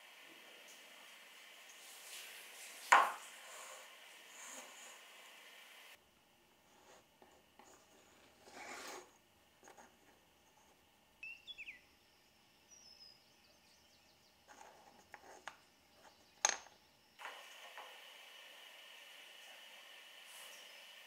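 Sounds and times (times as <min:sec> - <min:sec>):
high chirping glides: 0:11.2 - 0:13.2.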